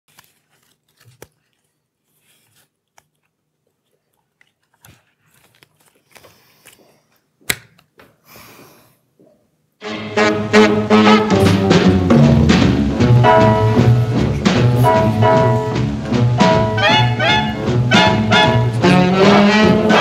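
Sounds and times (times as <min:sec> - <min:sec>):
cards being sorted: 0:00.1 - 0:03.4, 0:04.7 - 0:08.0.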